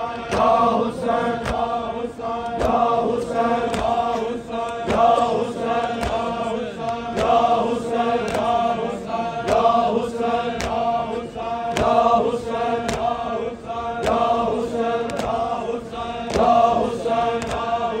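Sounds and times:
crowd of men chanting: 0.0s - 18.0s
chest-beating slaps: 1.3s - 1.8s, 2.4s - 7.5s, 8.2s - 8.6s, 10.5s - 13.3s, 14.0s - 15.5s, 16.2s - 17.8s.

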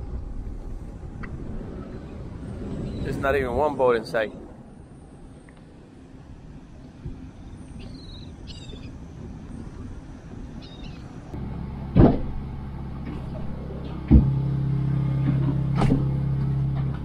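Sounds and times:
low steady hum: 0.0s - 17.0s
wind rumbling on microphone: 0.0s - 17.0s
loud knocks: 11.9s - 12.4s.

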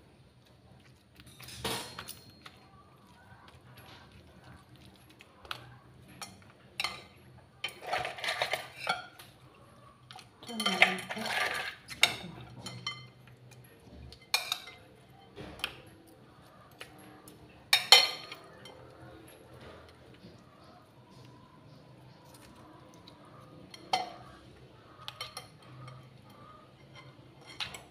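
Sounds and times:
metal utensils scraping ceramic bowl: 6.2s - 9.2s, 10.5s - 13.2s, 21.7s - 27.9s.

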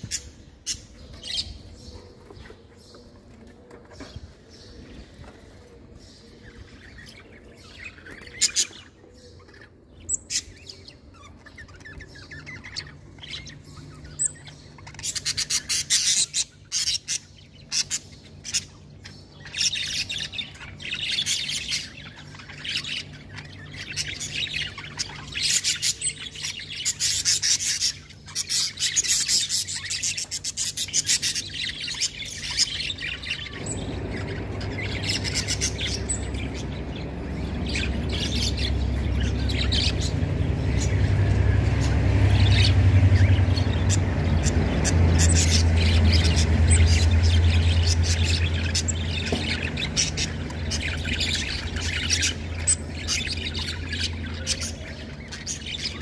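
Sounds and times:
budgerigars chirping: 6.4s - 56.0s
low steady hum: 17.3s - 56.0s
low rumble: 33.5s - 54.3s.

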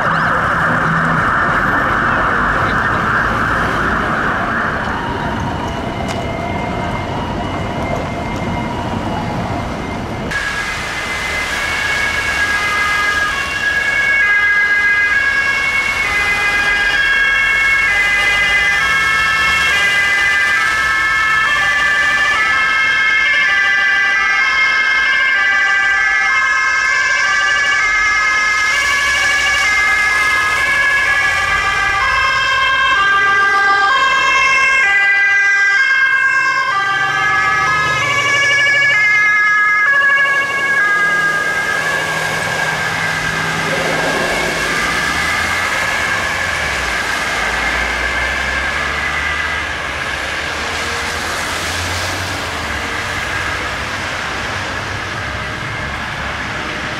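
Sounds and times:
steady siren tone: 0.0s - 56.9s
two-tone sirens: 0.0s - 56.9s
heavy truck engine passing: 35.8s - 56.9s.

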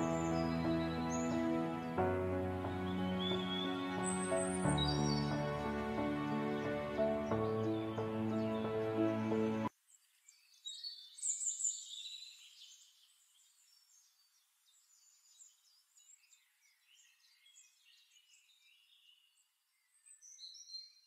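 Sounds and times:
birds chirping and whistling: 2.6s - 9.4s.

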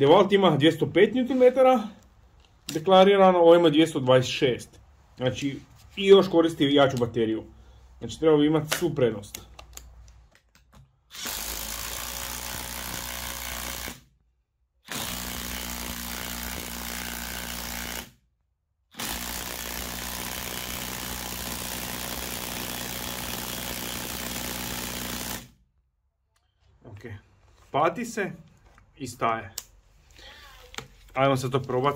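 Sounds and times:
impact driver hammering screw into wood: 11.1s - 14.0s, 14.9s - 18.1s, 19.0s - 25.5s.

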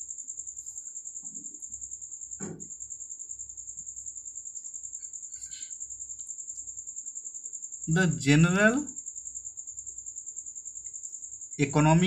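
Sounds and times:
cricket chirping: 0.0s - 12.0s
soft knock: 2.4s - 2.7s.

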